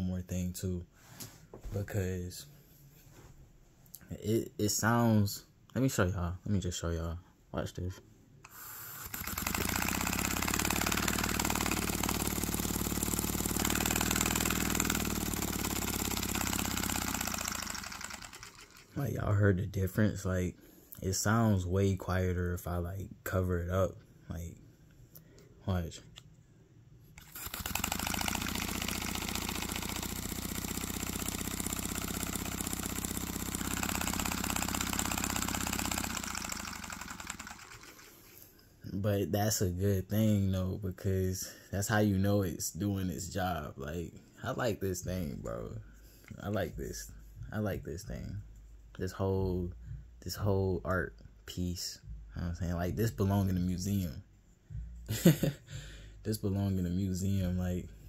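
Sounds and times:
model engine exhaust pulses: 0:08.5 - 0:18.9, 0:27.2 - 0:38.2.

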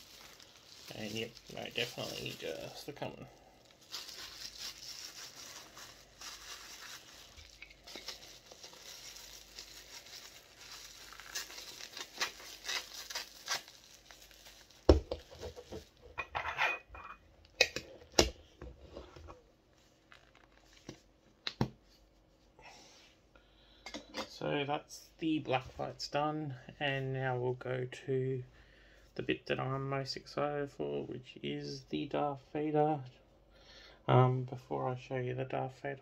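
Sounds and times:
bubble wrap crinkling: 0:00.0 - 0:16.1, 0:19.7 - 0:21.0.

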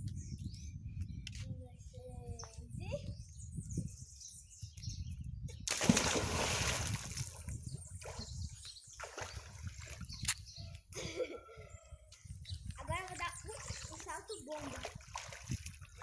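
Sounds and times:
person splashing into pool: 0:05.7 - 0:08.2, 0:14.6 - 0:16.0
water sloshing: 0:05.7 - 0:08.3, 0:12.8 - 0:16.0.

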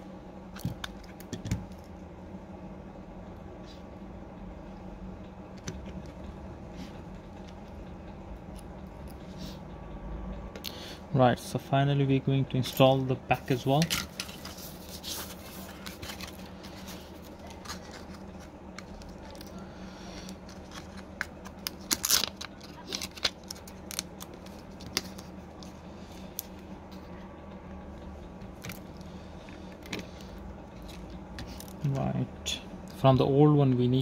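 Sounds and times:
steady low hum: 0:00.0 - 0:34.0
plastic film crinkling: 0:14.1 - 0:25.4.

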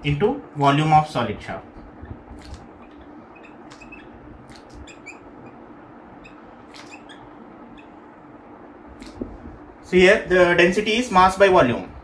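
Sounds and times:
faint room hum: 0:00.0 - 0:12.0
whiteboard marker squeaking: 0:02.0 - 0:08.1.

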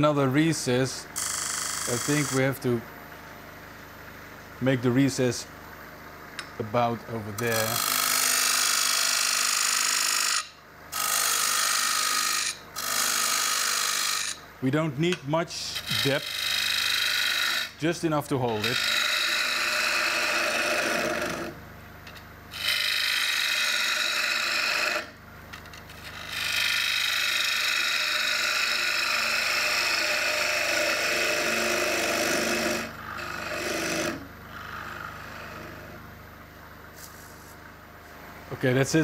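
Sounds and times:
lathe running quietly: 0:00.0 - 0:39.0
gouge cutting spinning wood: 0:07.5 - 0:14.4, 0:15.5 - 0:21.6, 0:22.5 - 0:25.2, 0:25.8 - 0:35.9.

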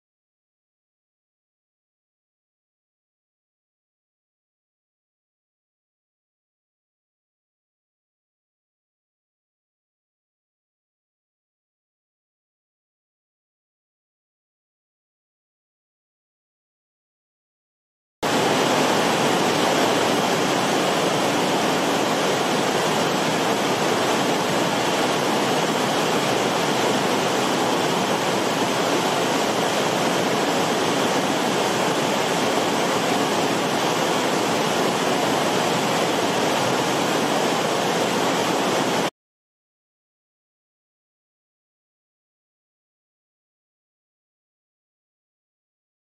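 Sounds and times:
water rushing over rocks: 0:18.2 - 0:39.1.

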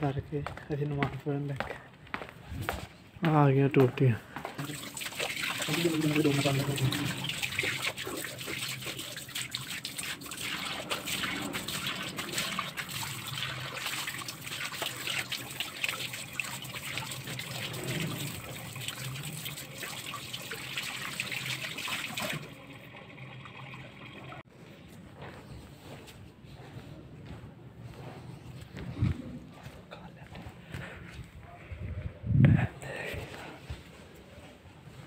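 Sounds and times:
tap water running and splashing: 0:04.6 - 0:24.4.

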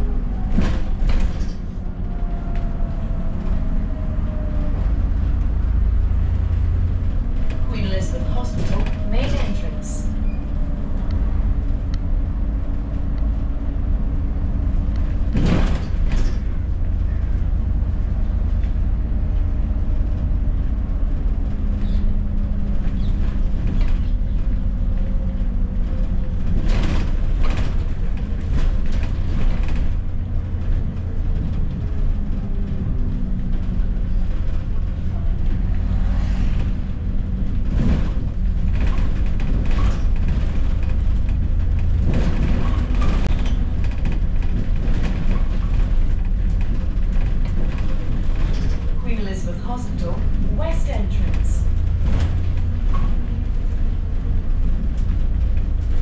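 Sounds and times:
bus diesel engine drone: 0:00.0 - 0:56.0
bodywork rattles and knocks: 0:14.5 - 0:35.9, 0:36.6 - 0:49.2, 0:51.2 - 0:56.0.

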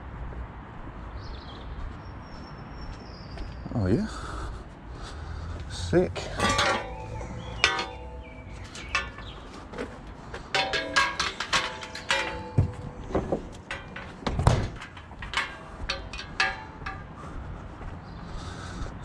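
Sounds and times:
scrap metal clanking: 0:06.1 - 0:17.4.

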